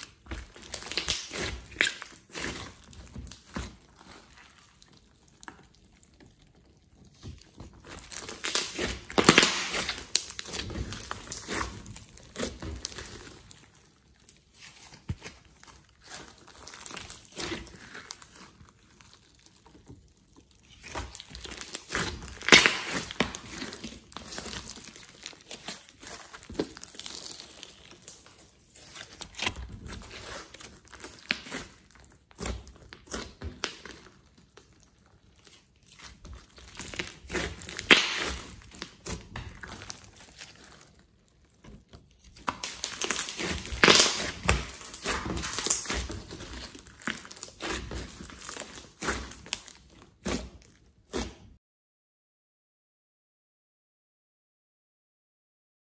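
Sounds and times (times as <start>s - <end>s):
slime crackling and popping: 0.0s - 51.6s.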